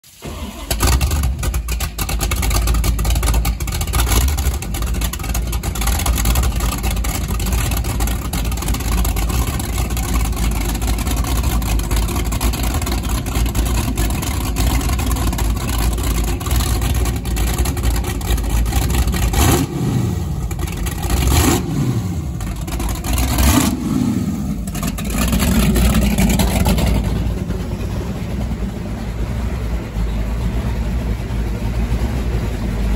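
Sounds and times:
engine throttle blips: 0.1s - 32.9s
boat engines lumpy idle: 0.5s - 21.4s, 22.1s - 23.8s, 24.4s - 32.9s.

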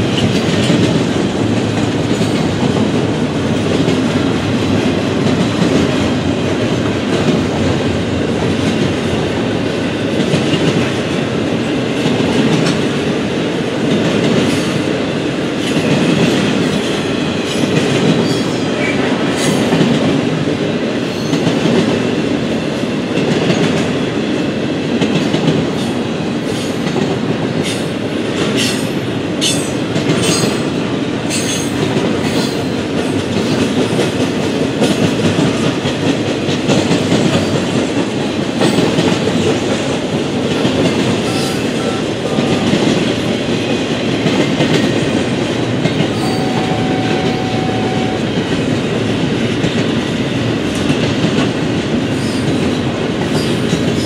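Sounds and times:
train wheels rumbling on rail: 0.0s - 54.0s
high-pitched wheel squeals: 46.1s - 48.2s.

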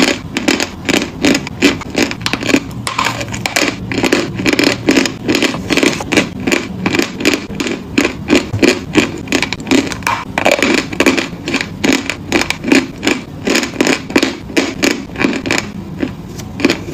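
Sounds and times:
chalk being chewed crunching: 0.0s - 16.9s.

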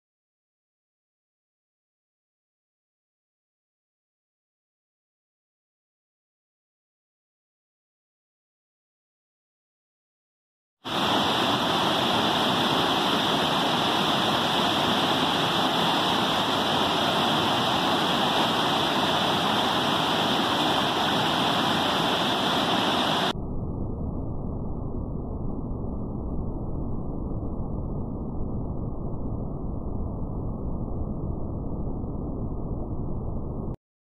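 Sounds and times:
water rushing over waterfall: 10.9s - 23.3s.

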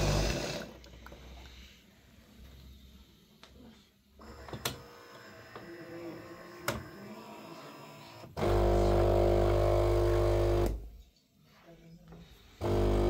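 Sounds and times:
vibration pump buzzing: 8.4s - 10.8s, 12.6s - 13.0s.

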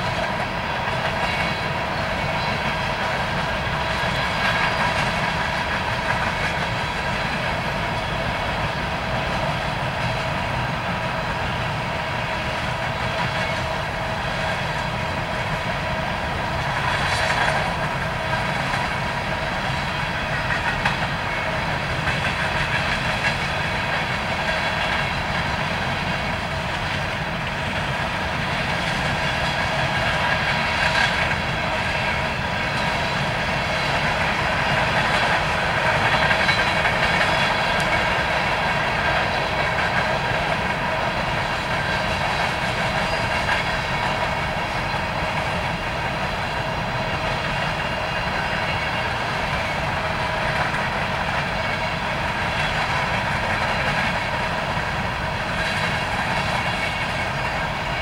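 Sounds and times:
freight train wheels rattling: 0.0s - 58.0s.

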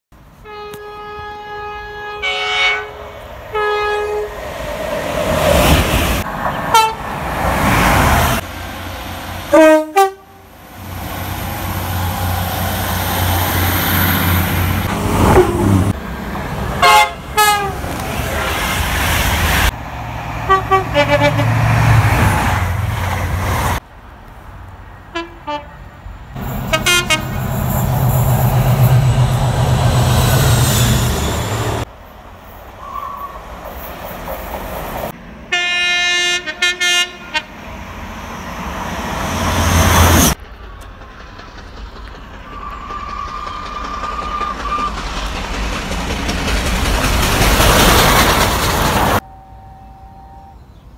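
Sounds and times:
train passing rumble: 0.3s - 50.9s
train horn blasts: 0.4s - 4.4s, 6.7s - 7.1s, 9.5s - 10.5s, 16.8s - 17.8s, 20.4s - 21.6s, 25.1s - 25.8s, 26.5s - 27.5s, 35.5s - 37.6s, 49.2s - 50.7s.

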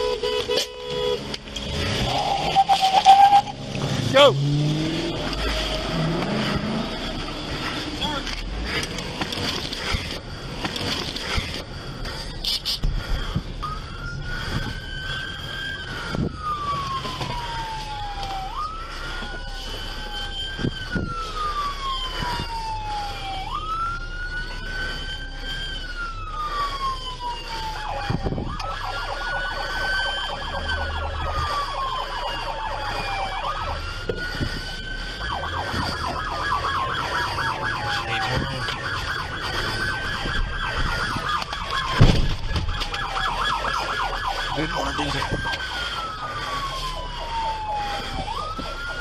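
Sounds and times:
fast pulsing siren tone: 0.0s - 49.0s
police siren wailing: 0.0s - 49.0s
sharp thump: 42.0s - 42.7s.

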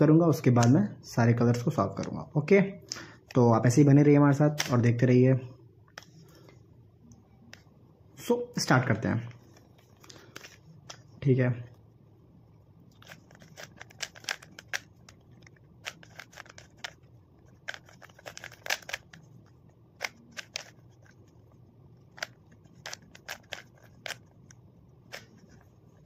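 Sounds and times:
plastic puzzle cube clicks: 13.0s - 17.0s, 17.6s - 19.2s, 20.0s - 21.1s, 22.1s - 24.3s.

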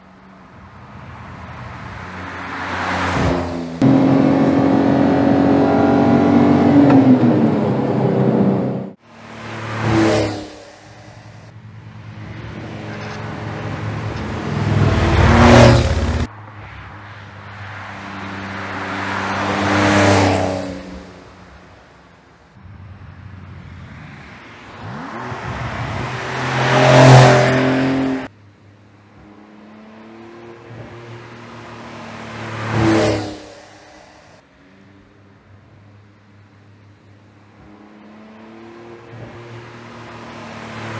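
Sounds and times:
sports car driving by: 1.2s - 21.4s, 23.3s - 28.3s.

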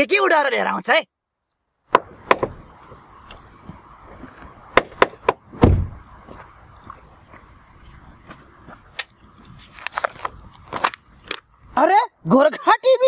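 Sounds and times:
car door shutting: 4.9s - 6.0s.

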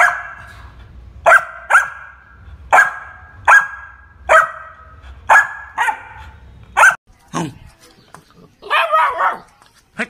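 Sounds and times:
puppy barking: 0.0s - 0.5s, 1.2s - 7.0s, 8.7s - 9.5s.

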